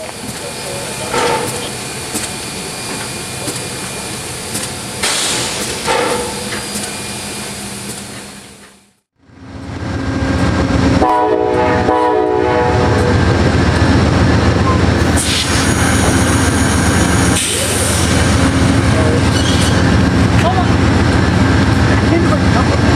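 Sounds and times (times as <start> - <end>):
steam locomotive hissing: 0.0 - 8.7, 15.0 - 22.9
passenger train rumbling past: 0.0 - 22.9
knocks and clanks: 4.5 - 7.0
train horn: 11.0 - 13.2.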